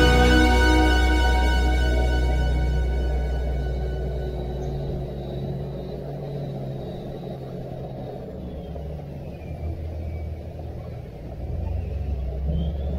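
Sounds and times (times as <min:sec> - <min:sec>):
vehicle engine and road rumble: 0:00.0 - 0:12.9.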